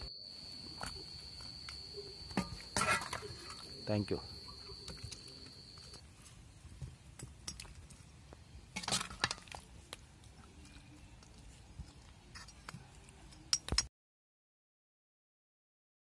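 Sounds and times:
metal ladle clinking on pot: 2.3s - 3.7s.

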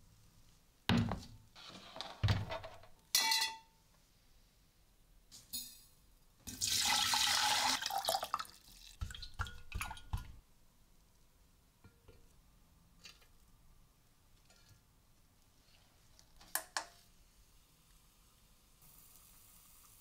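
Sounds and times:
water poured into jar: 6.5s - 10.2s.

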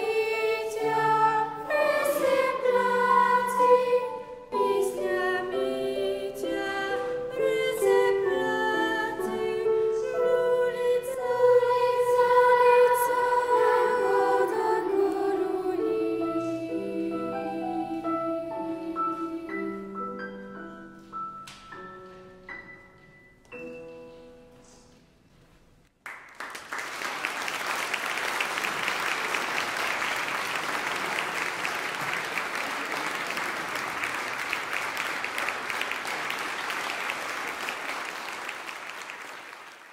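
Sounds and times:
girls' choir singing lullaby: 0.0s - 20.2s
audience applause: 26.0s - 39.9s.

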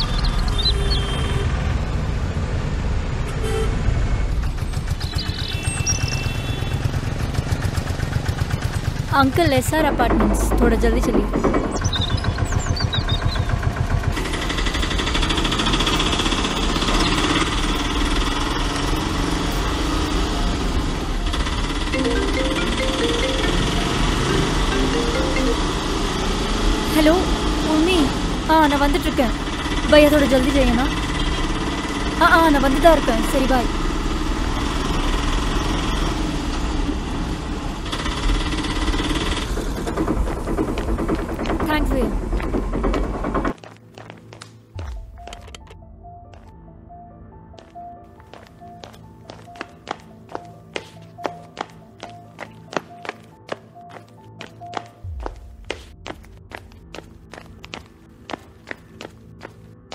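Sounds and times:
auto-rickshaw engine running: 0.0s - 43.6s.

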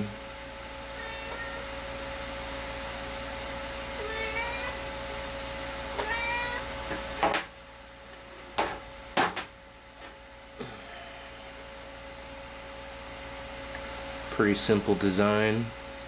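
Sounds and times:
faint hum: 0.0s - 16.0s
cat meowing: 1.0s - 1.7s, 4.0s - 4.8s, 6.0s - 6.7s.

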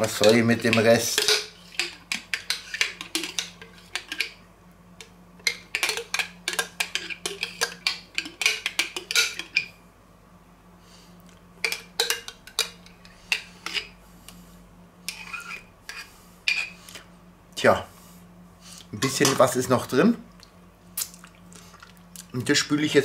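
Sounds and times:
metal spoon scraping glass jar: 15.1s - 16.7s.

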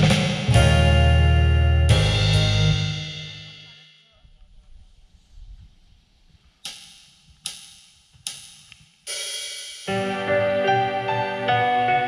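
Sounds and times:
drum count-in clicks: 6.6s - 9.0s.

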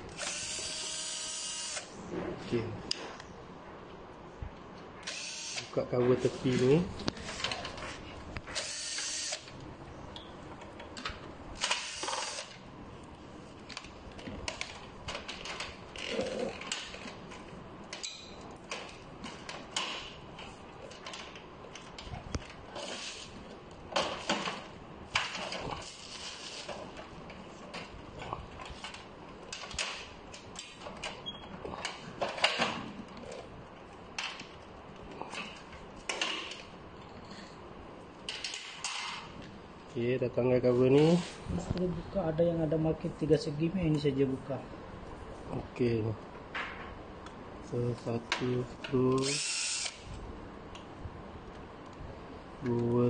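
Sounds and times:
cordless screwdriver running: 0.1s - 1.9s, 5.0s - 5.7s, 8.6s - 9.5s, 49.2s - 50.1s.

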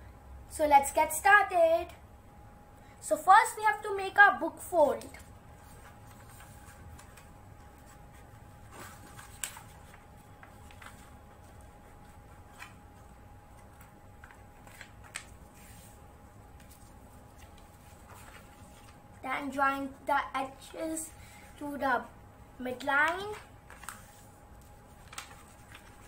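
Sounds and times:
faint steady hum: 0.0s - 26.0s
paper folding and creasing: 5.2s - 16.0s, 16.6s - 19.0s, 23.2s - 26.0s.

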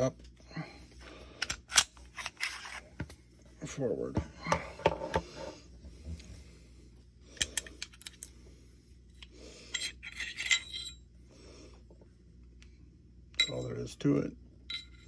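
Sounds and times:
pistol parts clicking and clinking: 1.4s - 2.8s, 7.4s - 8.3s.

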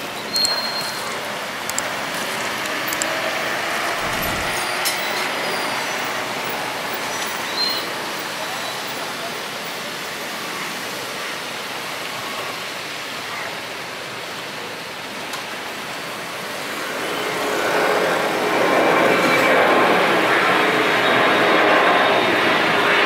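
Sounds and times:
jet engine roar: 1.0s - 8.1s, 16.4s - 23.0s
whining engine tone: 3.8s - 5.6s.

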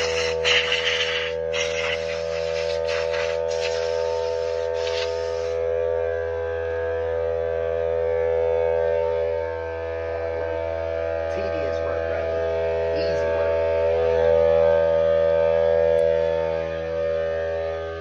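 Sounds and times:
hiss: 0.0s - 5.6s
machine hum: 0.0s - 18.0s.

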